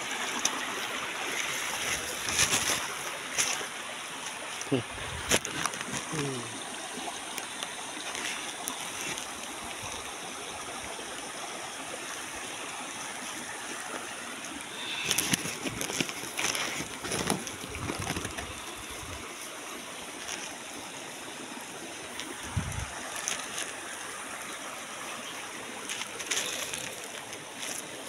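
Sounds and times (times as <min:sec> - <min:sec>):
stream water running: 0:00.0 - 0:28.0
rustling: 0:01.3 - 0:06.1, 0:14.8 - 0:19.2, 0:22.1 - 0:24.0, 0:25.8 - 0:28.0.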